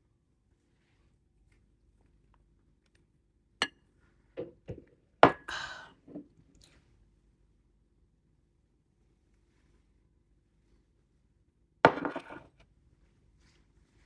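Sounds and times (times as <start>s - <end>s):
mug set down on table: 11.9s - 12.4s
tableware knocking: 11.9s - 12.4s.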